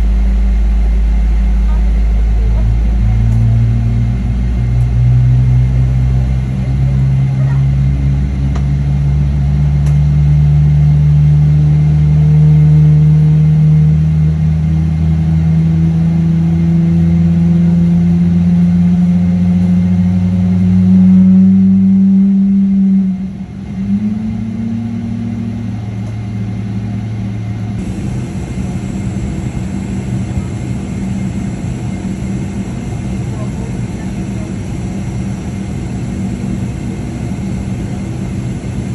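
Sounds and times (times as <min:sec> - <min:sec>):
jet engine spooling up: 0:27.8 - 0:38.9.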